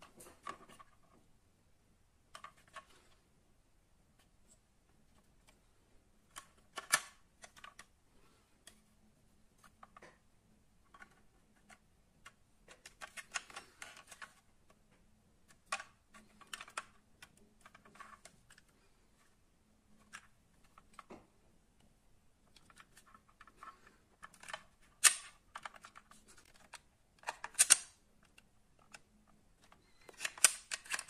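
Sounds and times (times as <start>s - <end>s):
clicks of toy truck being handled: 22.5s - 31.0s.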